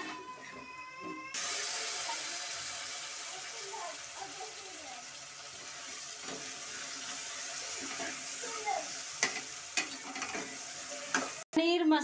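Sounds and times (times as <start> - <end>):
vegetables sizzling in hot oil: 1.3 - 11.5
ladle stirring in pot: 9.2 - 11.4.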